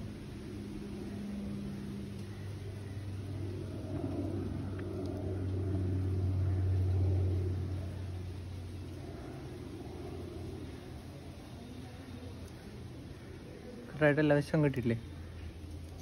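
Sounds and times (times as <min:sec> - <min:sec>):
vehicle engine rumble: 0:00.0 - 0:16.0.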